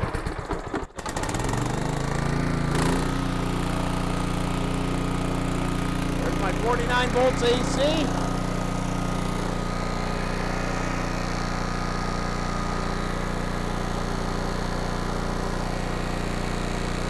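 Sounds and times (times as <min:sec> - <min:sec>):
air-cooled engine running: 0:00.1 - 0:17.0.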